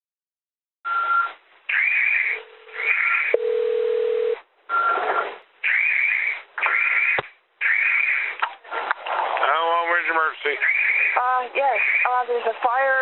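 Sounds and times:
steady phone tone: 2.4 - 5.1
phone line bursts: 2.4 - 5.2.

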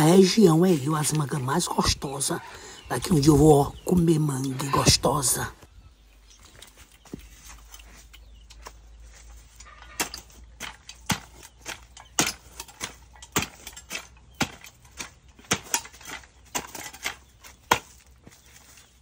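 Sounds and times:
post-hole digger thudding into earth: 9.9 - 18.1.

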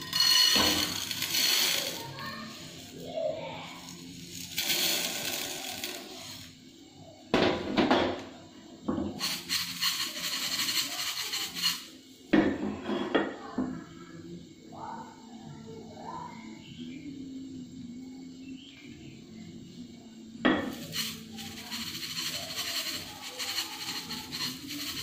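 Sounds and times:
beads rattling in metal pan: 0.0 - 6.5, 9.2 - 11.9, 20.7 - 25.0.

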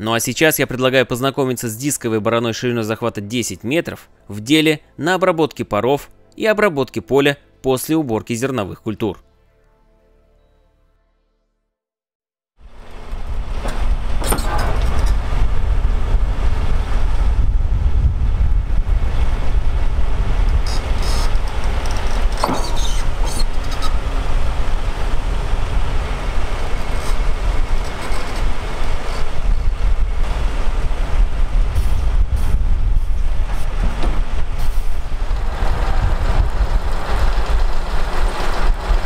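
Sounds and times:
tractor engine rumbling: 12.7 - 39.0
disc harrow rattling: 12.9 - 15.8, 20.5 - 30.0, 33.2 - 39.0.

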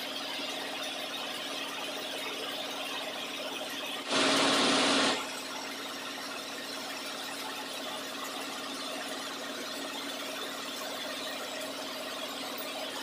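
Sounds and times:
lathe running: 4.1 - 5.2
loud harsh rush of noise: 4.1 - 5.2.

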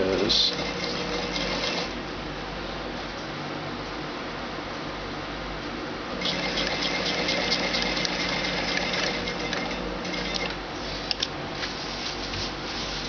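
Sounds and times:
sewing machine running: 0.3 - 2.0, 6.2 - 10.6.

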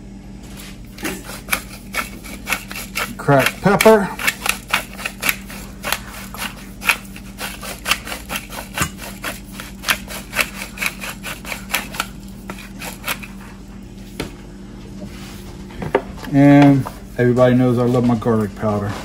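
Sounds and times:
pepper mill grinding clicks: 1.5 - 12.1.

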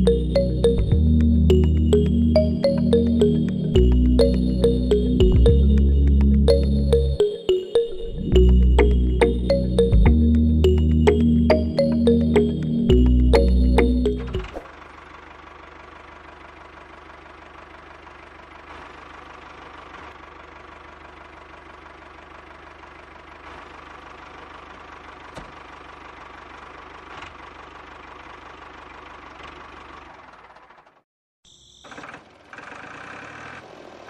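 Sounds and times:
toy tractor engine chugging: 14.5 - 31.0, 31.8 - 34.0.

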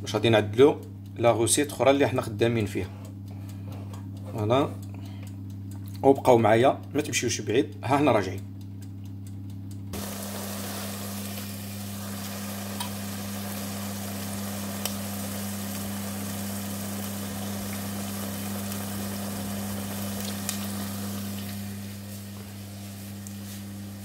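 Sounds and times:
steady low hum: 0.0 - 24.0
sauce sizzling in a pot: 10.0 - 24.0.

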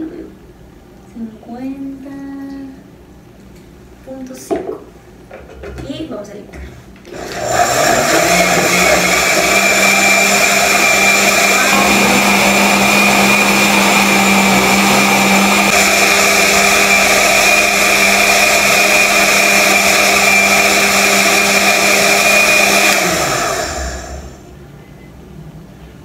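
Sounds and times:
blender running: 7.1 - 24.5.

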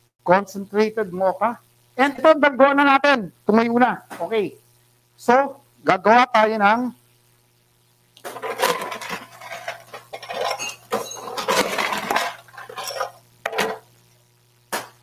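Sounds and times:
utensils clattering against glassware: 8.3 - 13.8.

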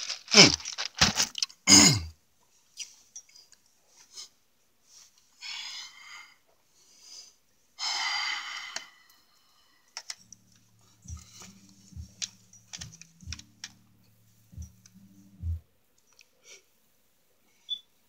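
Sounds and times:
low steady hum: 10.2 - 17.3.

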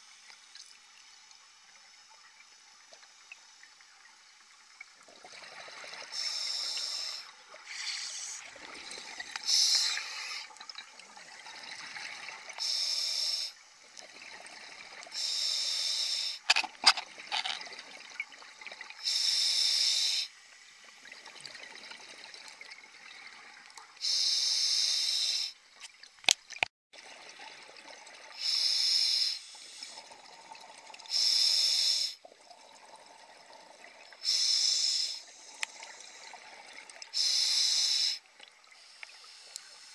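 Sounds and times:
faint hiss: 6.2 - 8.5, 12.6 - 13.6, 15.1 - 16.6, 19.0 - 20.4, 24.0 - 25.6, 28.4 - 29.9, 31.1 - 32.2, 34.2 - 36.3, 37.2 - 39.9.

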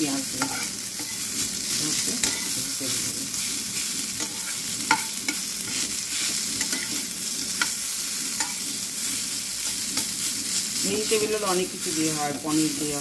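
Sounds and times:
food sizzling in a pan: 0.0 - 13.0
spatula scraping a pan: 0.3 - 2.6, 3.3 - 13.0
spatula clinking on pan: 4.2 - 5.4, 8.4 - 8.6.

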